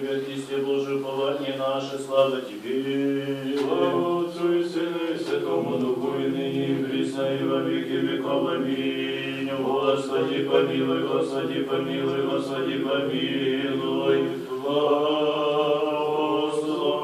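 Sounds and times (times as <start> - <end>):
group chanting in long notes: 0.0 - 17.0.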